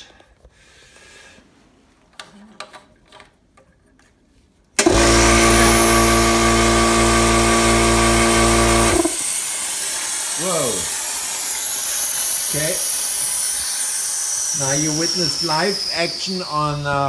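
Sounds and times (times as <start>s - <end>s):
air compressor droning: 4.8s - 17.0s.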